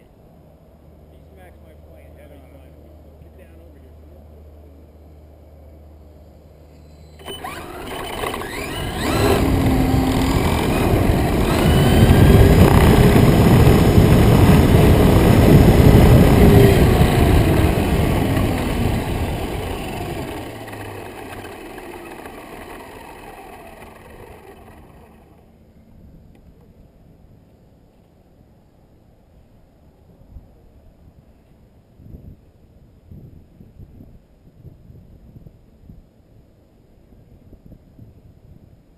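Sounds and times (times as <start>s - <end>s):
model airplane motor whine: 6.8s - 25.6s.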